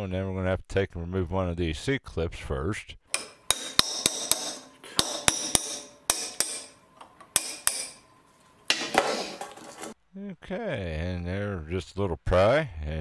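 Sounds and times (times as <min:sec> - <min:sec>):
hammer striking steel chisel: 0:03.1 - 0:08.1.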